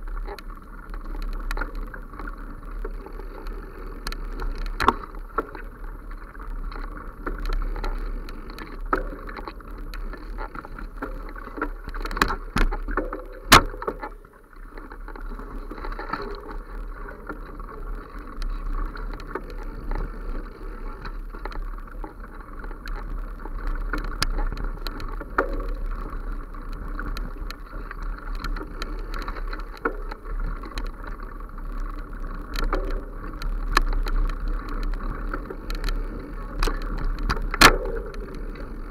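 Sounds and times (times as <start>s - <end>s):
small clicks and rattles: 0.0s - 38.9s.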